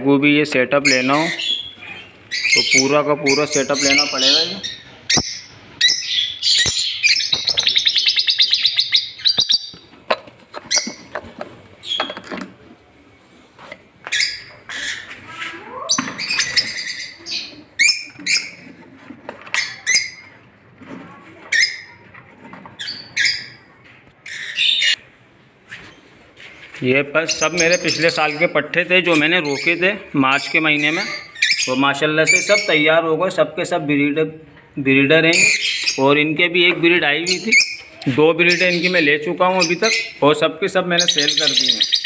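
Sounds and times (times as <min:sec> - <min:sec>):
parrots chirping and squawking: 0:00.8 - 0:12.4, 0:14.0 - 0:20.4, 0:21.5 - 0:22.0, 0:22.8 - 0:25.0, 0:27.2 - 0:33.0, 0:35.2 - 0:36.3, 0:37.2 - 0:42.0.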